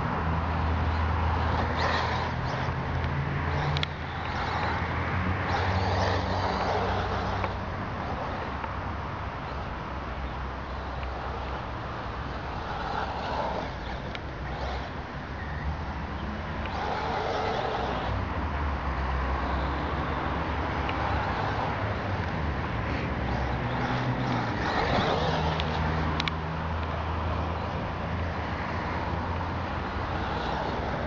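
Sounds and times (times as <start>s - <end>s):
electric toy truck motor running: 0.8s - 8.4s, 10.6s - 15.9s, 16.6s - 18.2s, 23.0s - 26.3s, 29.8s - 31.0s.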